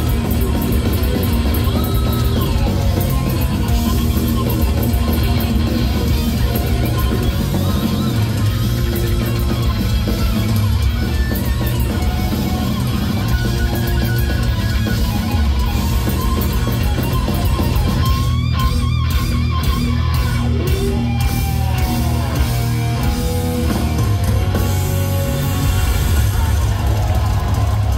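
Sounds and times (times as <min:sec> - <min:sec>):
loud live heavy metal: 0:00.0 - 0:27.9.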